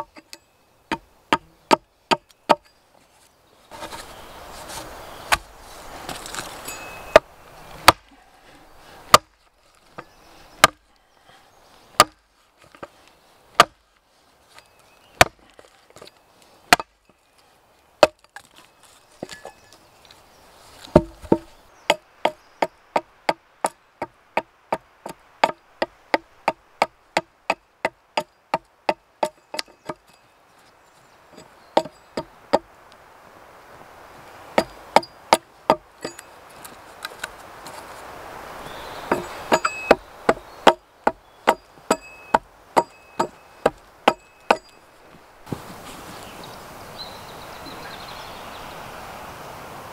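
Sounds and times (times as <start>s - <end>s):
axe chopping wood: 5.3s - 5.5s, 7.1s - 8.1s, 9.1s - 9.4s, 10.0s - 10.9s, 12.0s - 12.9s, 13.6s - 13.8s, 15.2s - 15.6s, 16.7s - 17.0s, 18.0s - 18.4s, 20.9s - 22.4s, 23.0s - 30.2s, 34.6s - 36.2s, 39.0s - 44.7s.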